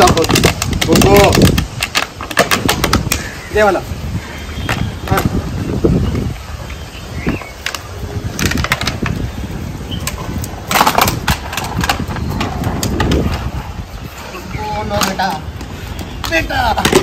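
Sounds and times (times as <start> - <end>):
plastic bottle crackling: 0.0 - 3.3.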